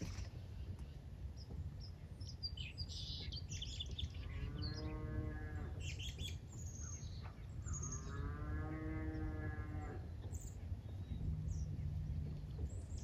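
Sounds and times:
small birds chirping: 0.0s - 13.0s
cow mooing: 4.4s - 5.8s, 7.8s - 10.1s
low rumble: 10.0s - 13.0s.

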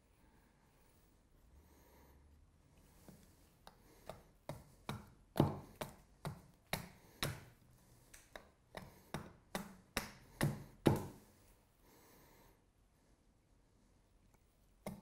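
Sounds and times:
hatchet chopping wood: 4.1s - 7.4s, 8.8s - 11.2s.

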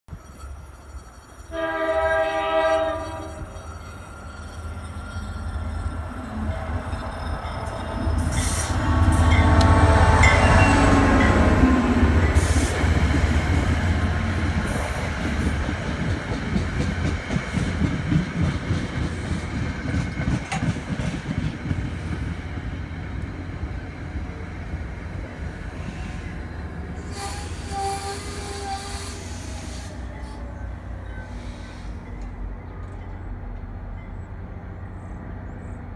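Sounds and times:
train brakes squealing: 0.1s - 9.6s, 10.2s - 13.9s, 25.7s - 32.4s
diesel locomotive passing: 0.1s - 35.9s
train wheels rumbling on rail: 1.5s - 35.9s.

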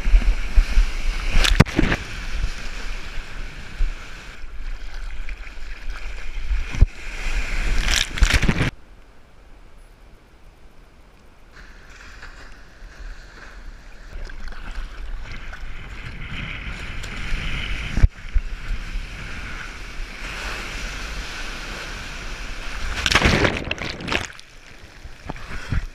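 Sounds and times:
rushing water: 1.1s - 8.7s, 12.1s - 25.9s
wind buffeting microphone: 14.2s - 24.3s.

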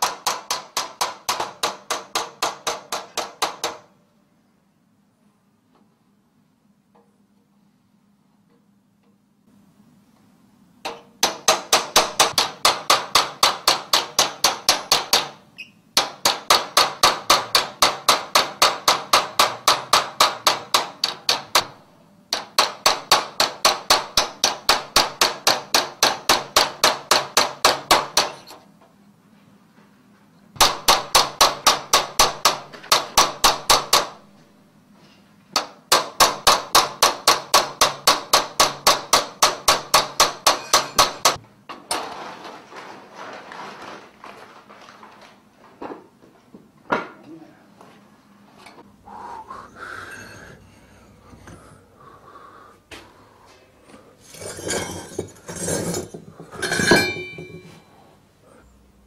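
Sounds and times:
hammer striking chisel on metal: 0.0s - 3.9s, 10.8s - 15.4s, 16.0s - 28.6s, 30.6s - 34.2s, 35.6s - 41.4s, 50.0s - 51.7s, 54.3s - 57.9s.

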